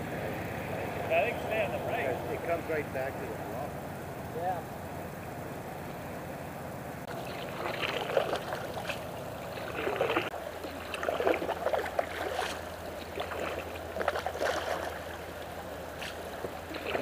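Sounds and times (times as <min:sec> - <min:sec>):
paddles splashing in water: 0:07.1 - 0:17.0.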